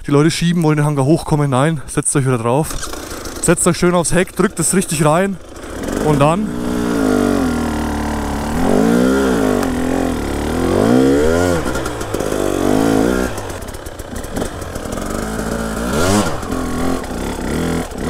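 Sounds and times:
two-stroke engine revving: 2.6 - 18.0.

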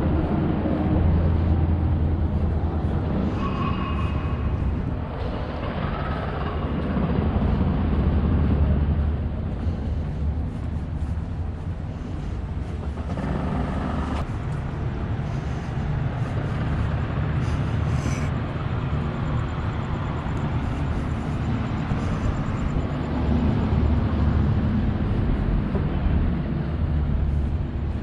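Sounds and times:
road traffic rumble: 0.0 - 28.0
wind on microphone: 0.0 - 28.0.

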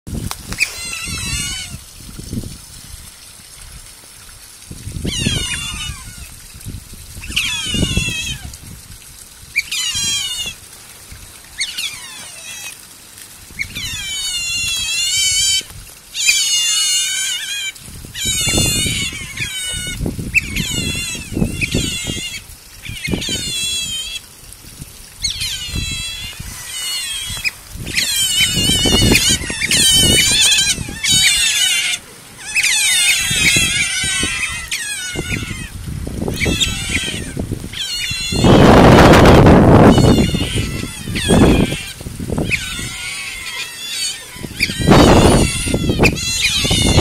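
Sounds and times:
otters squeaking: 7.2 - 8.5, 9.6 - 10.6, 13.6 - 24.2, 25.2 - 39.1, 39.8 - 47.0.

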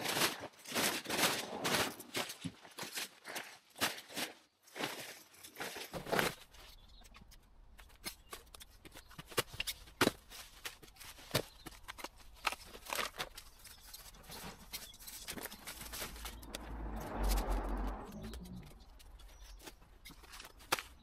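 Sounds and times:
twigs cracking: 0.0 - 21.0
leaves rustling: 9.8 - 21.0.

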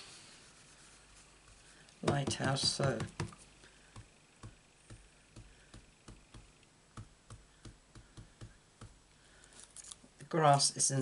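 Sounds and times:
sponge dabbing on card: 0.4 - 9.0.

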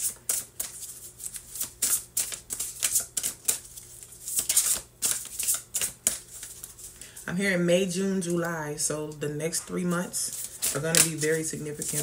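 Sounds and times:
cards being shuffled: 0.0 - 7.0, 10.3 - 12.0.

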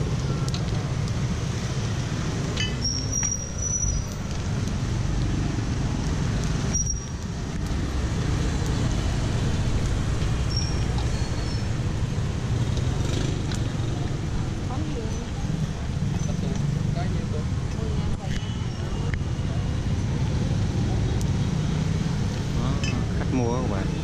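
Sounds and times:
traffic rumble: 0.0 - 24.0
brief high squeaks: 10.5 - 11.7.

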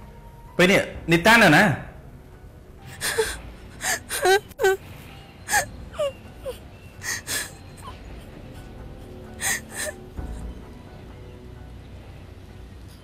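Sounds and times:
soft background music: 0.0 - 13.0
woman sobbing: 2.8 - 4.8, 5.5 - 10.5
sharp gasping breaths: 7.0 - 7.6, 9.4 - 10.0.

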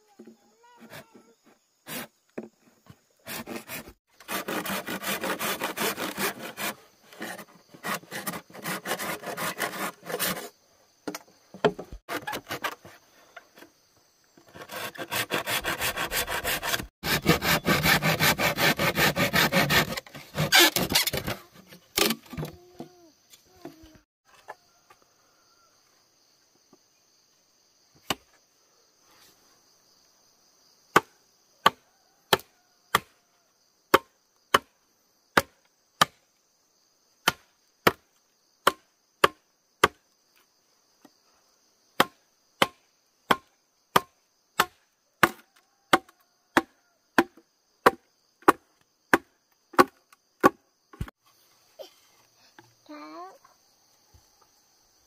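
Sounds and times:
hand saw cutting wood: 1.9 - 2.1, 3.2 - 10.6, 11.7 - 13.0, 14.4 - 22.6.

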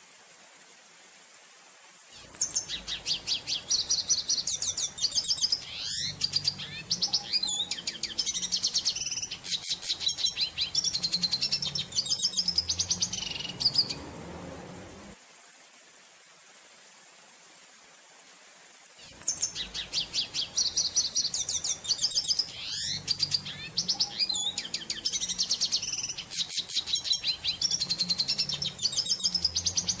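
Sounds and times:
bird singing trills: 2.3 - 14.0, 19.2 - 30.0.

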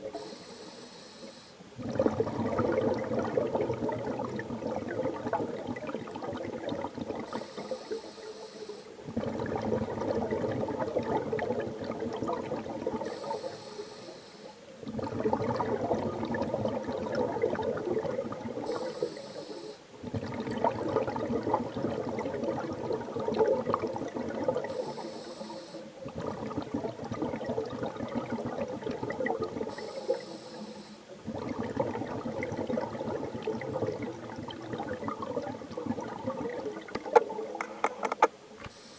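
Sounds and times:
diver inhaling through regulator: 0.1 - 2.0, 7.3 - 8.9, 13.0 - 14.6, 18.6 - 19.8, 24.7 - 25.9, 29.7 - 31.1
bubbling exhale underwater: 1.7 - 8.1, 9.0 - 13.6, 14.8 - 19.3, 20.0 - 25.1, 26.0 - 38.0.

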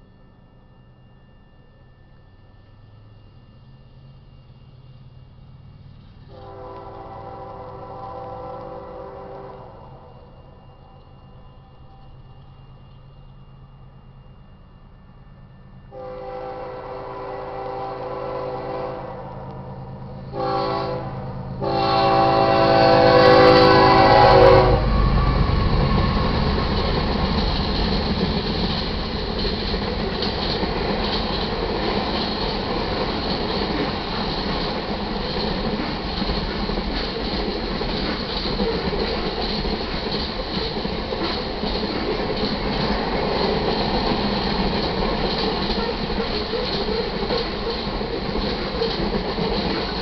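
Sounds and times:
train wheels rumbling on rails: 0.0 - 50.0
locomotive air horn: 6.3 - 11.1, 15.9 - 19.4, 20.3 - 25.4.

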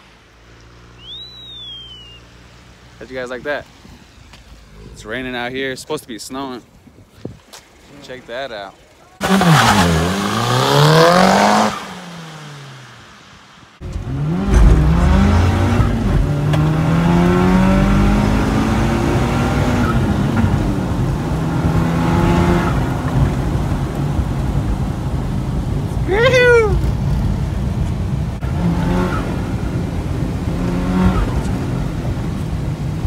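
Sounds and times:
turbocharged car accelerating: 9.2 - 33.0.

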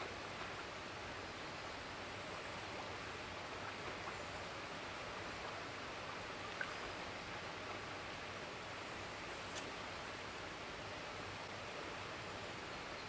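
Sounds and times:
small click: 9.5 - 9.7.

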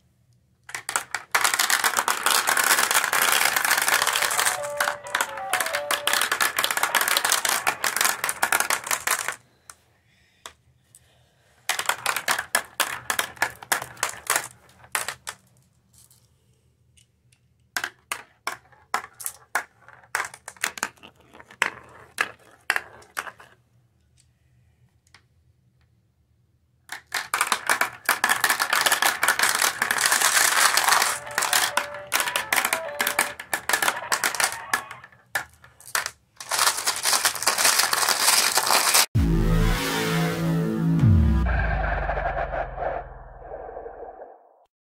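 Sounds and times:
marbles clattering down a marble run: 0.7 - 9.4, 11.7 - 15.4, 26.9 - 39.0.

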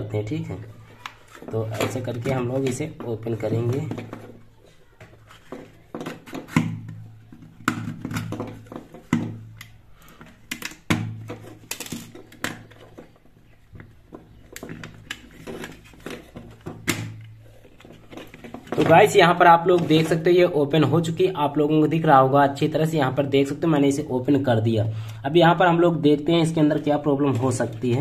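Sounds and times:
plastic clicks and knocks: 1.0 - 20.2.

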